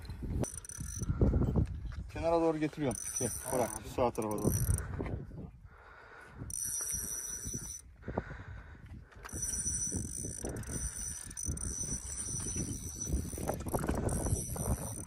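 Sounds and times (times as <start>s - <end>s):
fishing reel rattling and clicking: 0.0s - 1.3s, 2.6s - 4.9s, 6.5s - 7.9s, 9.2s - 15.0s.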